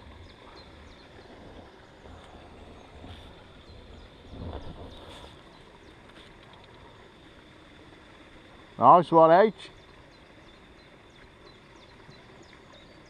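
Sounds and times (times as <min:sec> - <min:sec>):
wind rumble on microphone: 0:00.0 - 0:05.7.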